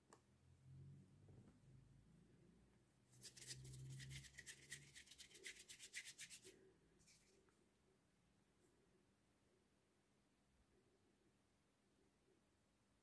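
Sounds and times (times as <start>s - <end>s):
hand rubbing strokes: 3.1s - 7.5s.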